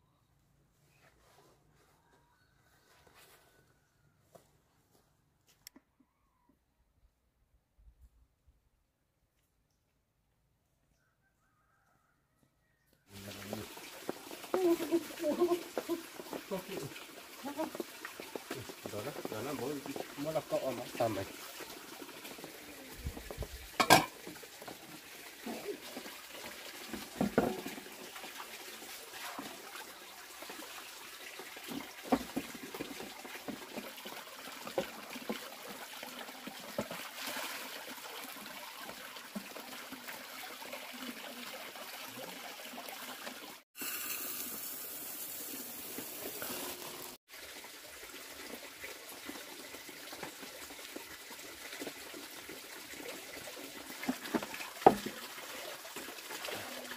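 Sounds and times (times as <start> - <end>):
water trickling and splashing: 13.1 - 56.9
metal pots knocking: 23.8 - 24.3, 27.2 - 27.8.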